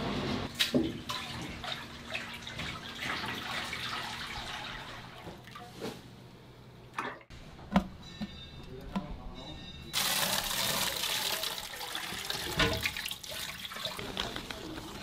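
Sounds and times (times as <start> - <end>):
water running and splashing: 9.9 - 15.0.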